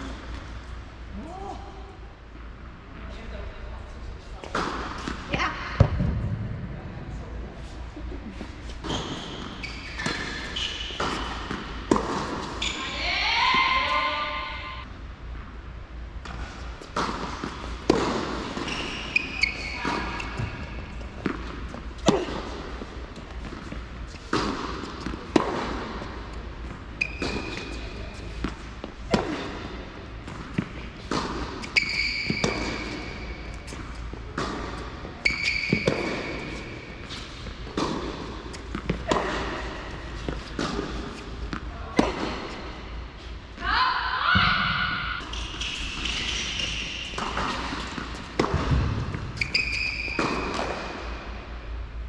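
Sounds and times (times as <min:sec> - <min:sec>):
tennis balls hit by rackets: 0:04.4 - 0:06.6, 0:08.4 - 0:12.9, 0:16.2 - 0:43.3, 0:44.5 - 0:51.6
tennis balls bouncing on court: 0:08.4 - 0:13.9, 0:16.2 - 0:43.3, 0:44.4 - 0:51.5
high-pitched shoe squeaks: 0:08.8 - 0:11.4, 0:12.6 - 0:13.0, 0:18.6 - 0:20.7, 0:27.0 - 0:27.9, 0:31.6 - 0:33.7, 0:35.2 - 0:37.2, 0:45.2 - 0:47.6, 0:49.4 - 0:50.5.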